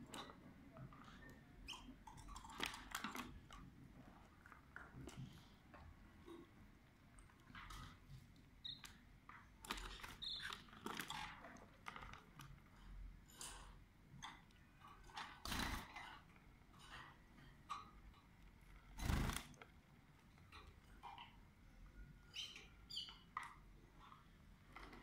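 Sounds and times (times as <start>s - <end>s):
birds rustling in cage: 18.8s - 19.6s.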